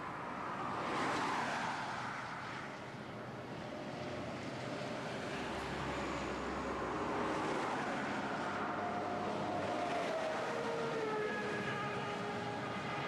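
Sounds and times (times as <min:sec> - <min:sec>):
heavy lorries passing: 0:03.4 - 0:13.0.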